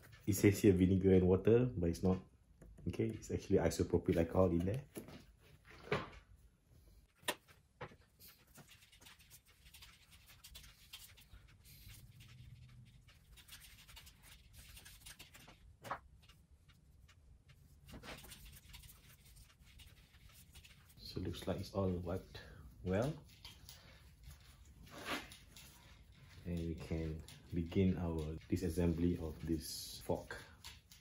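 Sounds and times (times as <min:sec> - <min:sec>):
cloth wiping: 0:16.2 - 0:23.4.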